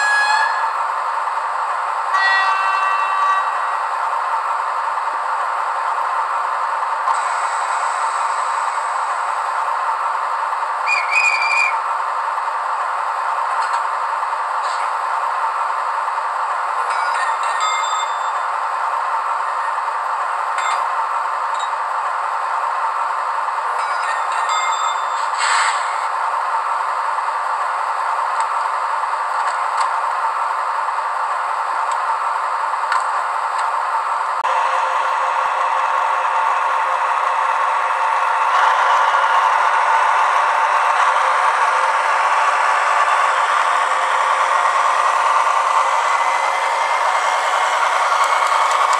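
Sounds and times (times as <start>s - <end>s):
model railcar sound through speaker: 0.0s - 48.9s
short whistle-like tone: 10.9s - 11.8s.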